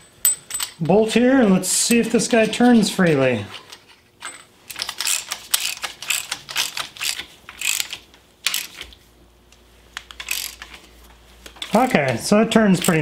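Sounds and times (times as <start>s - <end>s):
ratchet wrench clicking: 4.7s - 8.9s, 10.0s - 10.8s, 12.8s - 13.0s.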